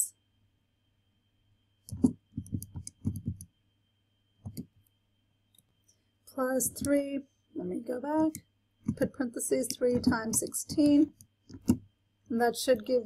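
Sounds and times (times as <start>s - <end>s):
calculator keys clicking: 1.9s - 3.4s, 8.9s - 11.8s.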